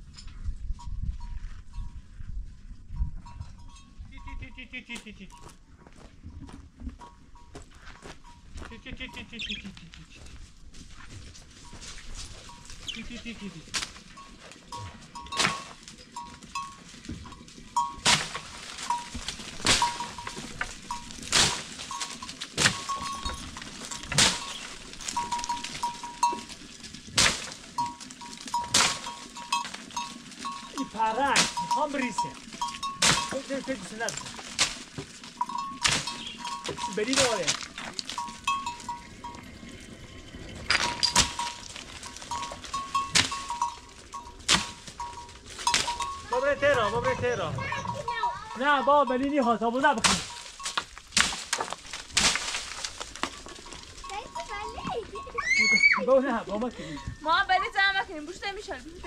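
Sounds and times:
livestock bell clinking: 0.0s - 5.6s, 6.9s - 9.8s, 11.5s - 51.1s, 52.8s - 59.0s
wooden pole striking branches: 13.7s - 14.1s, 15.2s - 15.9s, 17.2s - 38.6s, 40.7s - 46.4s, 50.0s - 53.8s.

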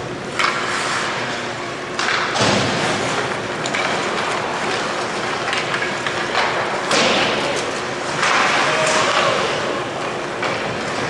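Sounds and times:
hockey sticks and puck knocking: 0.3s - 1.2s, 2.0s - 11.0s
skate blades scraping ice: 0.4s - 1.4s.

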